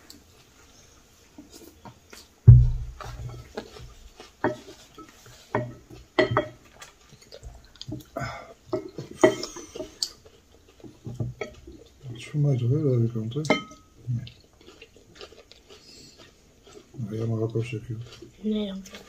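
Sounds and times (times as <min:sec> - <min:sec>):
heavy thump: 0:02.5 - 0:03.2.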